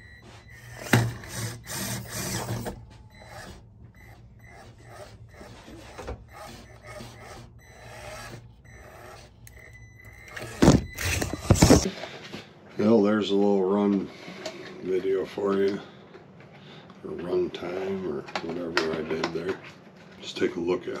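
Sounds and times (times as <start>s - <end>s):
small electric drivetrain whirring: 0.0s - 11.8s.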